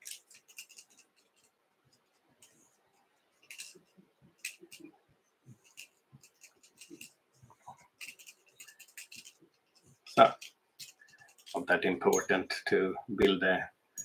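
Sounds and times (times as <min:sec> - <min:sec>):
thread clicks and scratchy ticks: 0:00.0 - 0:12.3.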